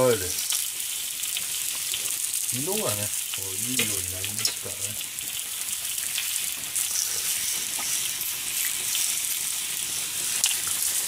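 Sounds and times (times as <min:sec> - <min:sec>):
oil sizzling and bubbling: 0:00.0 - 0:11.0
small oil pops: 0:10.4 - 0:10.8.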